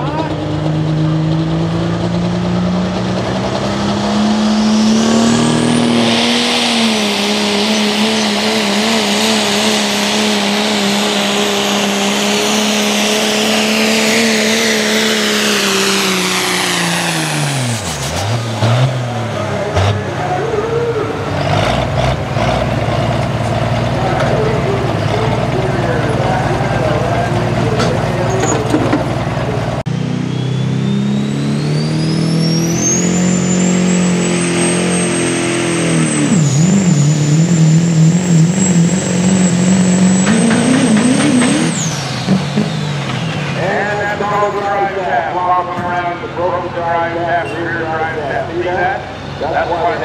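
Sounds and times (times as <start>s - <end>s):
engine at high revs: 0.0s - 50.0s
metal knocks and clanks: 27.8s - 29.4s.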